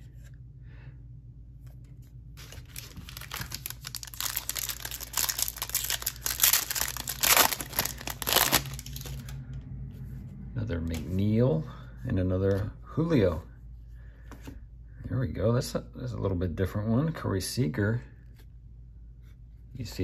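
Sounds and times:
foil wrapper crinkling and tearing: 2.4 - 9.4.

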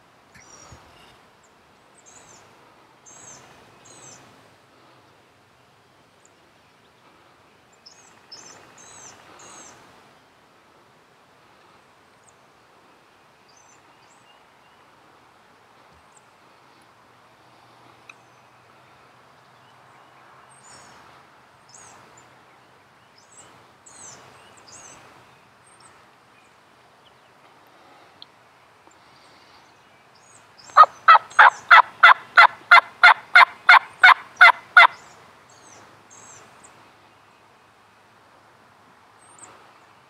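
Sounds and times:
faint songbird chirps: 0.3 - 4.3, 5.6 - 9.9, 17.8 - 31.8, 33.7 - 38.2
wild turkey calls: 30.6 - 35.0.

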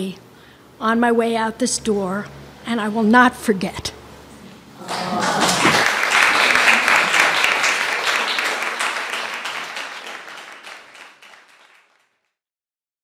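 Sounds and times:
audience applauding: 4.8 - 12.2.

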